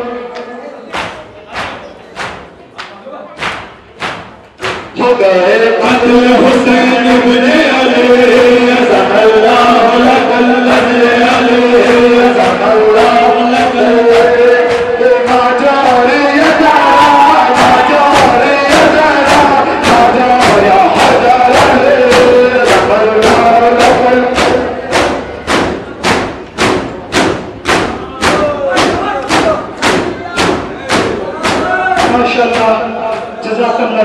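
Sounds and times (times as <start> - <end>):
hands beating chests: 0.9 - 5.2, 9.7 - 33.3
men chanting into microphones: 4.9 - 25.4, 27.9 - 34.0.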